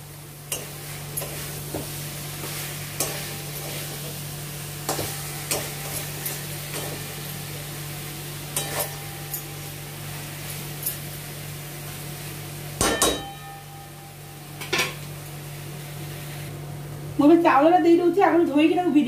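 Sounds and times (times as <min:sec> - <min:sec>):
food sizzling: 0:00.0 - 0:16.7
spatula scraping a pan: 0:00.5 - 0:04.2.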